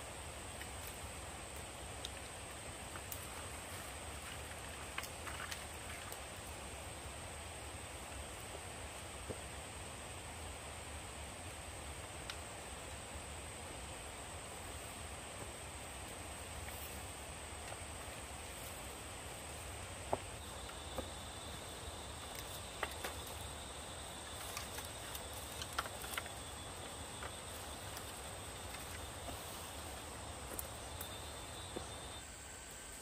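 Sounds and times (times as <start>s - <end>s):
high insect drone: 0.0s - 33.0s
soft outdoor hiss: 0.0s - 33.0s
bamboo poles clicking and knocking: 4.1s - 6.3s, 22.1s - 32.0s.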